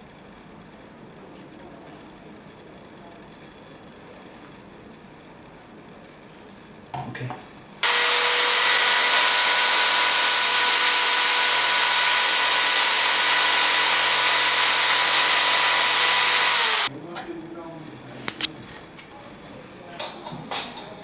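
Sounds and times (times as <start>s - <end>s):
electric drill grinding into phone: 7.8s - 16.9s.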